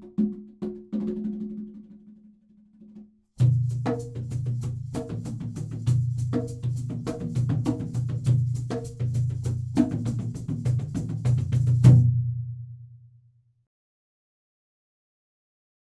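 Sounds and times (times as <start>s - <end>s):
fast dry percussion hits: 3.4s - 12.2s.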